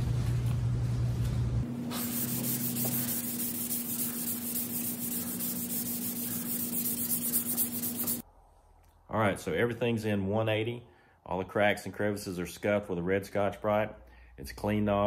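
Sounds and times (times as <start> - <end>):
sandpaper rasping on metal: 1.9 - 8.2.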